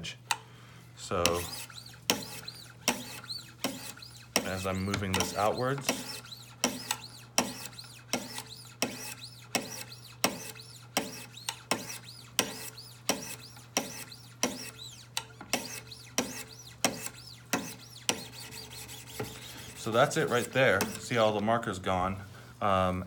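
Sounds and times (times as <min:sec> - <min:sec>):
sharpening stone scraping knife edge: 0:01.2 - 0:21.0.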